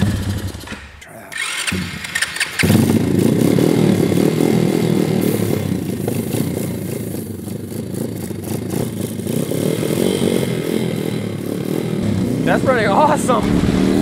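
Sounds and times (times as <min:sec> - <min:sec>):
motorbike engine running: 0:00.0 - 0:00.8, 0:01.4 - 0:14.0.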